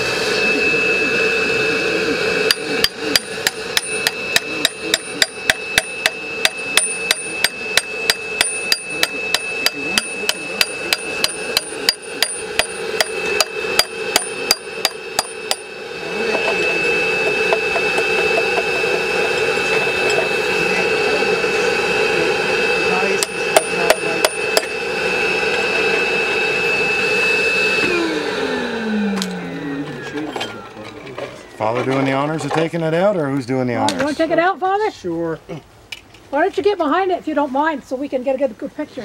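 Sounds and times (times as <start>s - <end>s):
hammer on chisel into stone: 2.5s - 15.7s, 23.2s - 24.7s.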